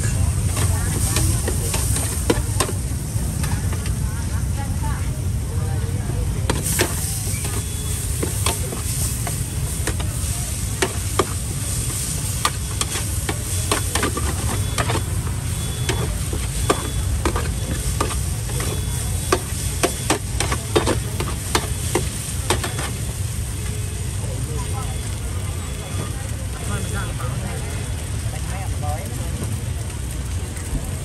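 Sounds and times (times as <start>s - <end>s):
utensils scraping a pan: 0.0s - 2.8s, 6.5s - 23.0s
food sizzling: 0.0s - 31.0s.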